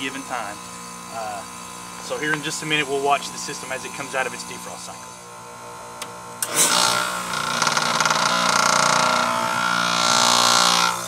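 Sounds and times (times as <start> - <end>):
compressor humming: 0.0 - 11.0.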